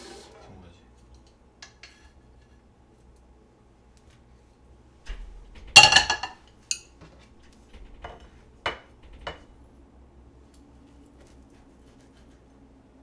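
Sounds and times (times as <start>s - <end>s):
frying pan clattering on grate: 5.1s - 7.2s, 7.8s - 9.6s.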